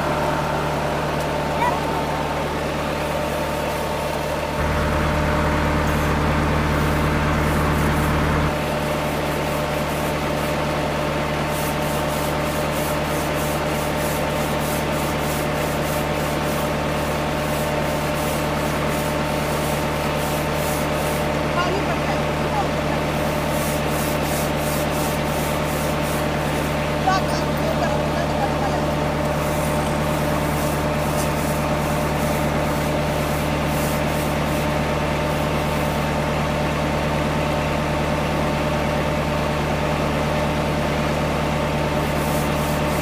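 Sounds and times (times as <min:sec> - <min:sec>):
pump humming: 0:00.0 - 0:43.0
brush scrubbing wet webbing: 0:06.8 - 0:36.1, 0:42.0 - 0:43.0.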